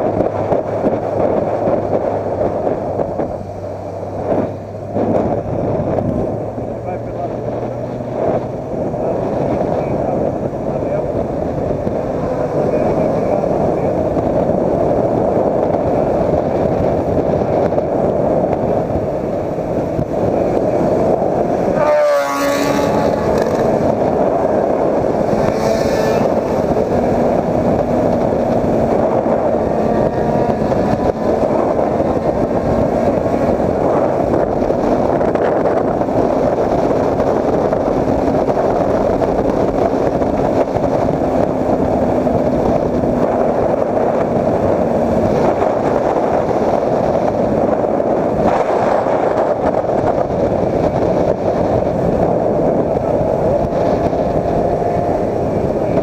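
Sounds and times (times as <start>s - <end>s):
motorcycle engine hum: 0.0s - 56.0s
wind rushing on microphone: 0.0s - 56.0s.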